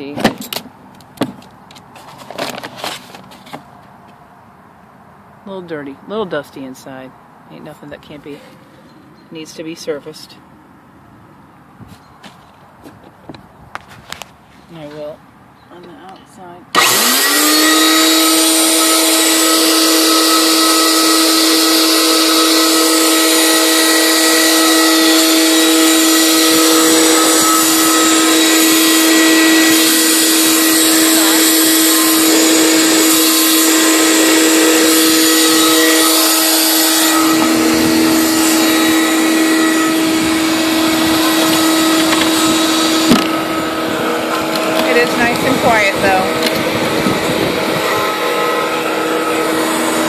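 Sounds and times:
vacuum motor whining: 0:16.7 - 0:50.0
rushing air: 0:16.8 - 0:50.0.

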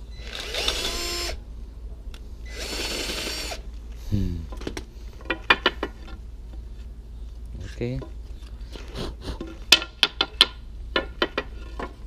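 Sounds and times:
cordless drill boring wood: 0:00.2 - 0:01.4, 0:02.5 - 0:03.6.

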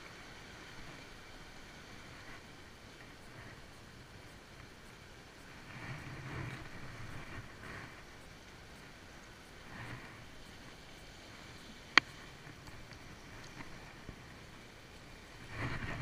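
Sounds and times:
sea washing on rocks: 0:00.1 - 0:16.0
wind buffeting microphone: 0:11.9 - 0:16.0.

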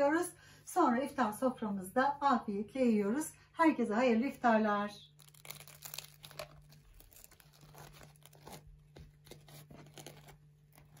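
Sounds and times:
bread crust tearing: 0:05.2 - 0:11.0.

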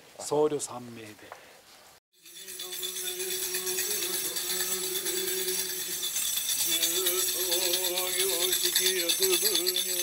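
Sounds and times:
metal rings jingling: 0:02.2 - 0:10.0.

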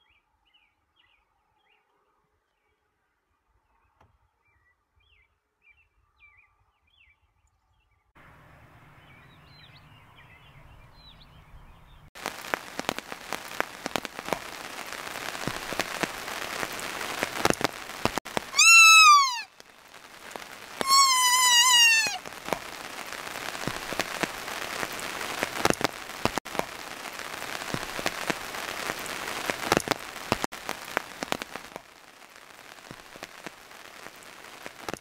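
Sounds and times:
rain pattering: 0:12.2 - 0:35.0
fawn distress bleat: 0:18.6 - 0:19.5, 0:20.8 - 0:22.2.

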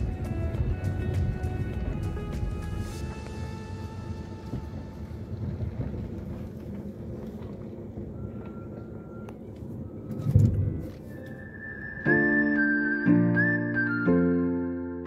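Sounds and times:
car interior driving rumble: 0:00.0 - 0:11.9.

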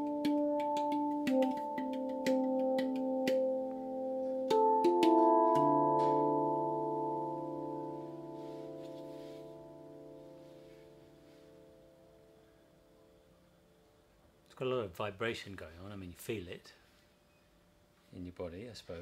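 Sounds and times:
steel tongue drum notes ringing: 0:00.0 - 0:12.3.

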